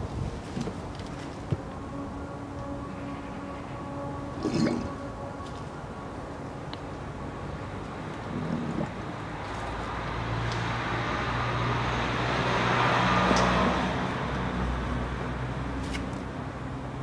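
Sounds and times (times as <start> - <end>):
vehicle passing by: 7.4 - 16.0.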